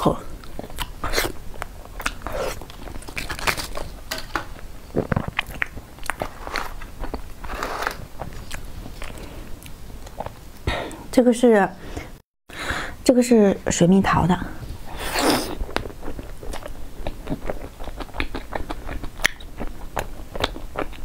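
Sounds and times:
person chewing pastry: 0.4 - 10.7, 14.9 - 21.0
plastic tray crinkling: 3.0 - 4.5.

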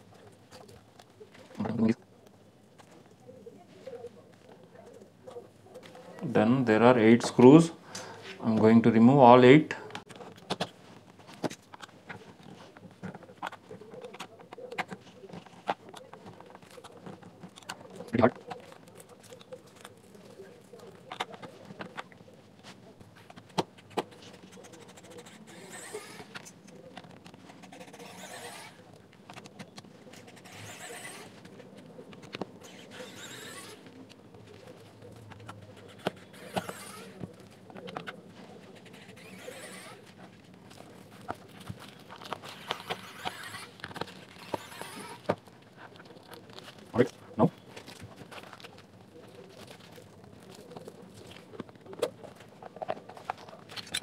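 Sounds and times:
screwdriver turning small screws: 30.2 - 31.3, 32.2 - 33.8, 42.2 - 45.4.

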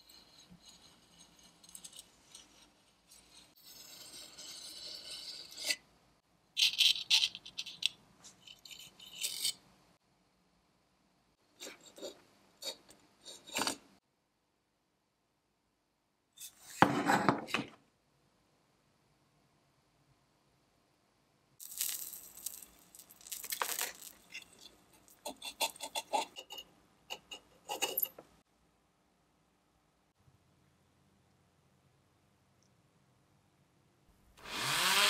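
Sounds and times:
tin toy parts scraping on metal: 0.0 - 5.8, 6.6 - 9.7, 21.6 - 28.2.

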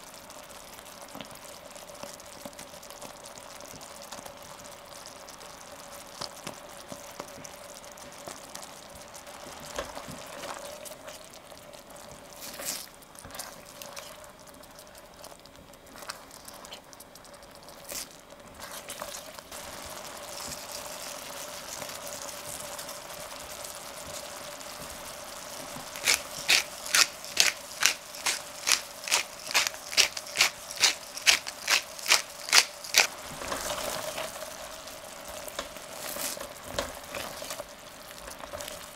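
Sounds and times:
sauce simmering: 0.0 - 38.9
spatula stirring in a pan: 6.2 - 38.9
pepper mill grinding clicks: 26.0 - 33.1.

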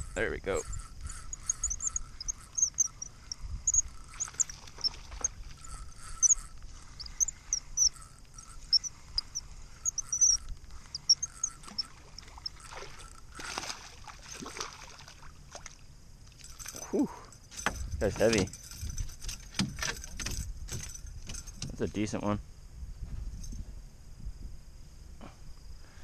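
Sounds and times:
small birds chirping: 0.0 - 13.4
fish splashing at water surface: 11.7 - 15.8.

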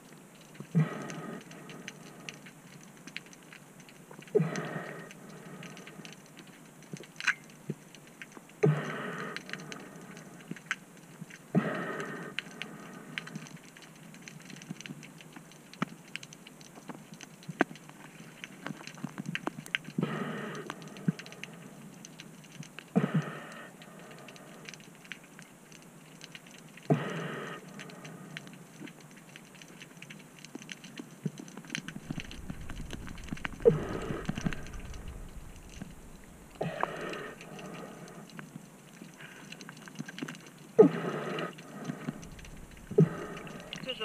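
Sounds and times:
underwater crackle of clicks: 0.1 - 44.0
underwater rushing swishes: 31.8 - 38.4, 41.7 - 44.0.

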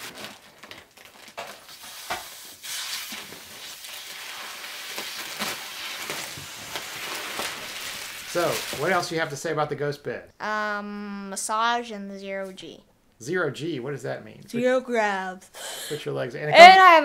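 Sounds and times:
plastic wrapping crinkling: 0.0 - 9.3.

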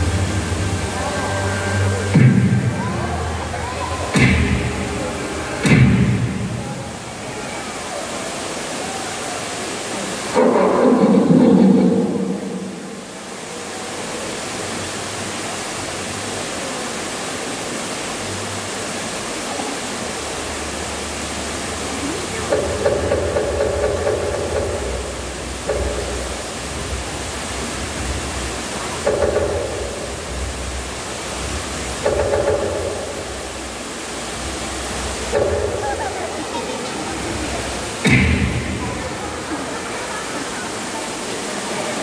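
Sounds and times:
steady rushing noise: 0.0 - 7.4, 20.4 - 42.0.

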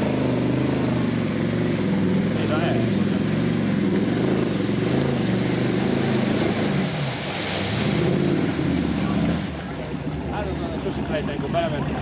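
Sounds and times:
engine revving under load: 0.0 - 9.8
mud spraying: 1.8 - 9.9.

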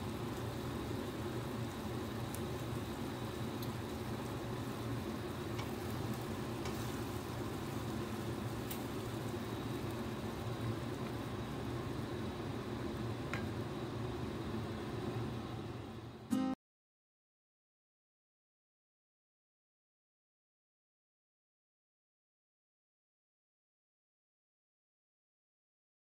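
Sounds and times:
food sizzling in frying pan: 0.0 - 16.2.

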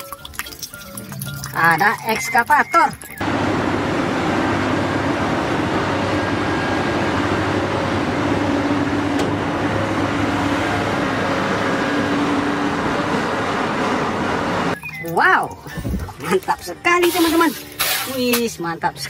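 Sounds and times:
excavator diesel engine under load: 3.2 - 14.8.

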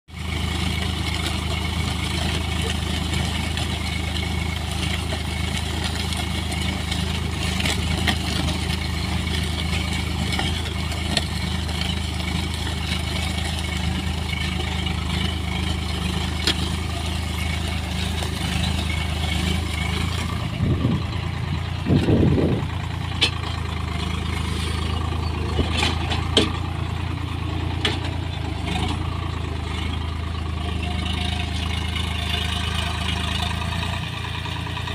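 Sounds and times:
tractor diesel engine under load: 0.0 - 34.9
bumps and knocks: 25.5 - 26.7.

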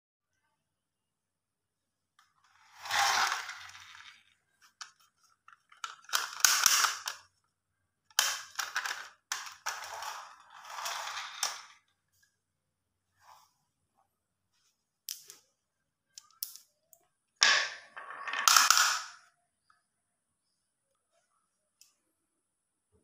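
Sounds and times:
small wheels rolling: 2.5 - 7.2, 8.5 - 11.8
plastic toy truck rattling: 2.5 - 7.3, 8.1 - 11.8, 17.4 - 19.2.

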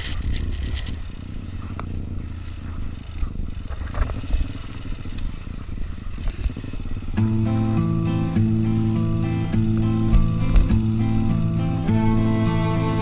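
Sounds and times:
motorcycle engine low rumble: 0.0 - 13.0
clicks and knocks from bike: 3.2 - 5.3.

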